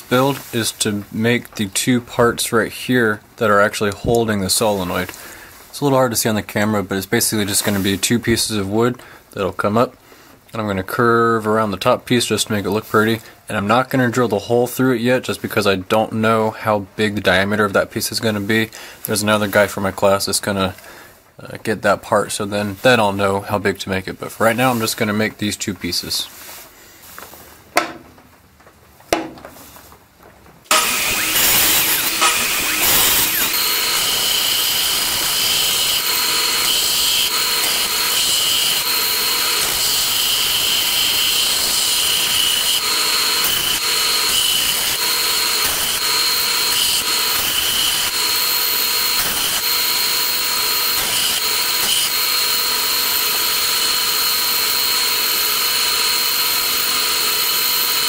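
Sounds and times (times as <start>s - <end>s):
belt sander running: 30.7s - 58.0s
wood being sanded: 30.7s - 58.0s.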